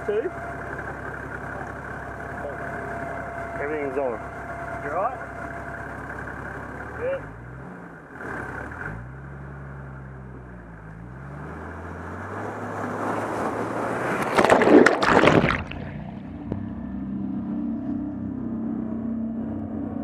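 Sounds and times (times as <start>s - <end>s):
vehicle engine revving: 0.0s - 14.9s, 15.7s - 20.0s
water rushing: 12.6s - 16.1s
loud water splash: 12.8s - 16.2s.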